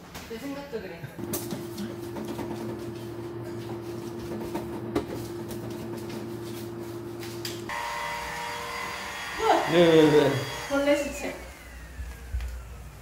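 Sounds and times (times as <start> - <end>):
stick vacuum cleaner whine: 1.2 - 13.0.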